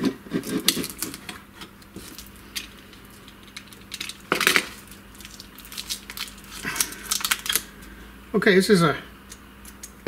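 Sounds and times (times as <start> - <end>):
plastic packaging crackling: 0.3 - 7.8.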